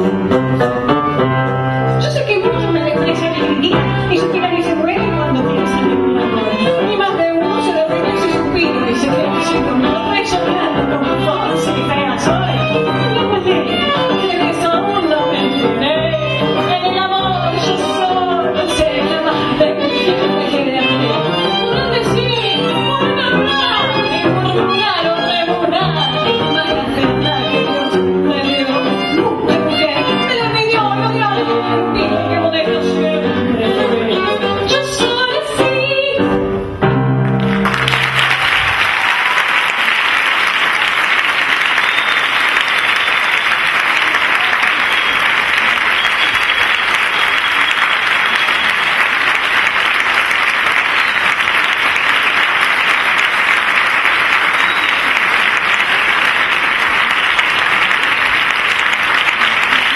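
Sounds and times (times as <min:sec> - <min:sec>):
live song with voices and piano: 0:00.0 - 0:59.9
audience applause: 0:37.2 - 0:59.9.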